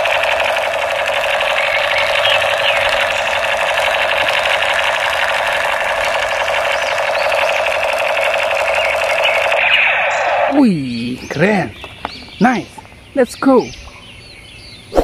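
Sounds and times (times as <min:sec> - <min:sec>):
toy machine gun rattle: 0:00.0 - 0:09.6.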